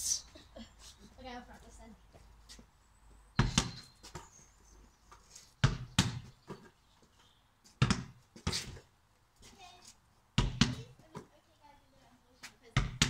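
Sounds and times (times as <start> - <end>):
basketball thudding on hard surface: 3.4 - 3.8, 5.6 - 6.6, 7.8 - 8.8, 10.4 - 11.3, 12.8 - 13.0.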